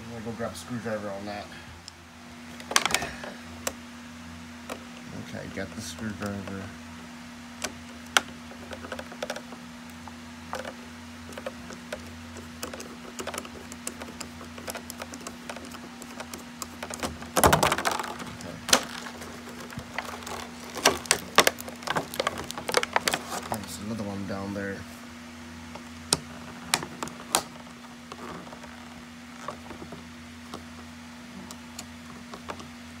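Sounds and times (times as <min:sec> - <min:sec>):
small plastic clicks: 0:07.6 - 0:23.7
plastic packaging crinkling: 0:11.3 - 0:23.9.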